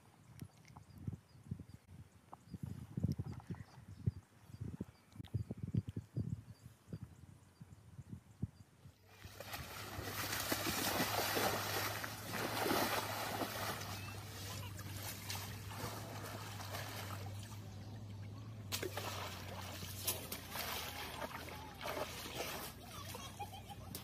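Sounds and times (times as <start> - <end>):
mud sloshing and splashing: 9.1 - 24.0.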